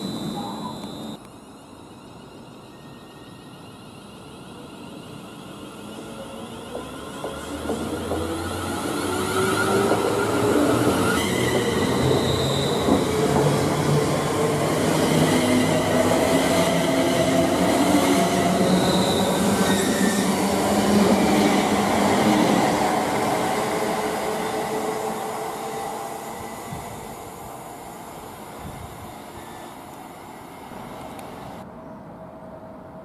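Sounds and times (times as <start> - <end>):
train traction motors whining: 0.0 - 1.2.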